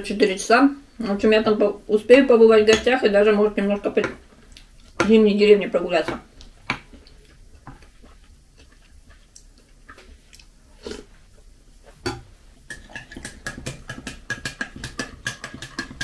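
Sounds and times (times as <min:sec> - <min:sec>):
spoon eating from bowl: 0:12.1 - 0:16.0.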